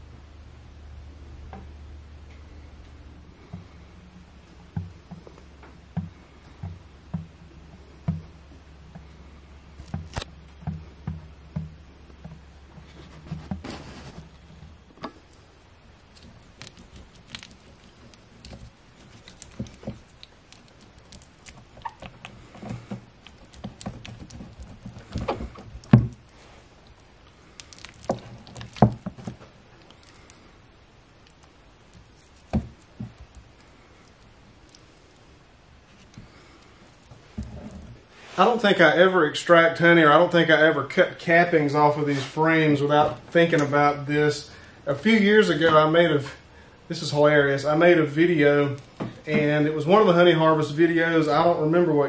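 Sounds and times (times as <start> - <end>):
low steady hum: 0.0 - 52.0
knife scraping wax cappings: 12.3 - 30.6, 31.2 - 38.6.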